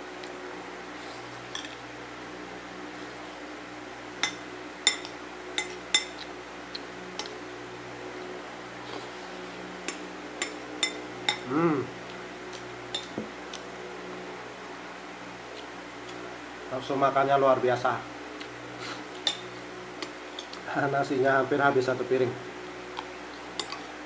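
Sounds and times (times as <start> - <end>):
electric fan hum: 0.0 - 24.0
short vocal sound: 11.4 - 11.9.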